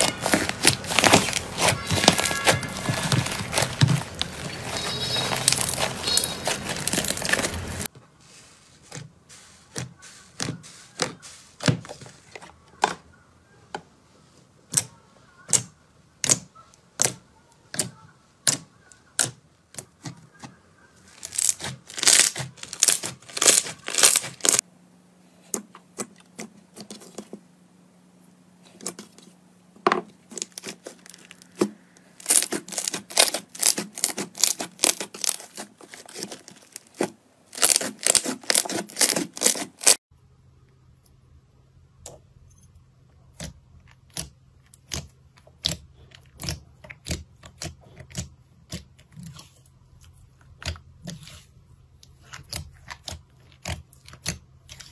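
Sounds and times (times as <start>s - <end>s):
slime crackling and tearing: 0.0s - 7.9s, 21.1s - 24.6s, 30.3s - 40.0s
slime popping: 21.2s - 24.6s, 32.2s - 40.0s.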